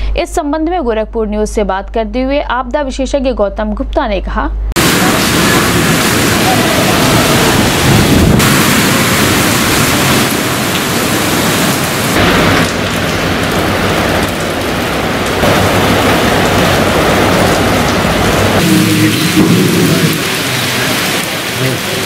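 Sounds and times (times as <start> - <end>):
heavy rain falling: 4.8 - 22.0.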